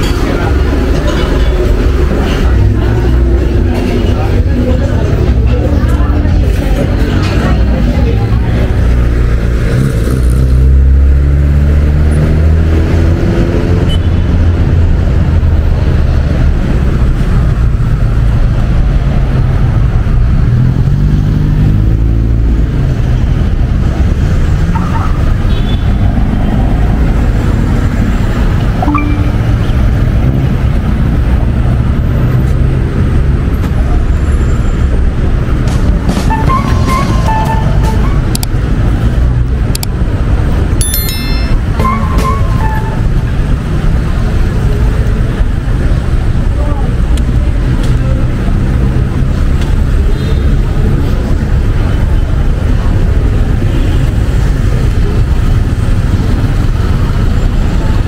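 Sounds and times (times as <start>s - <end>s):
vehicle engine accelerating: 0.0s - 24.6s
road traffic: 0.0s - 58.0s.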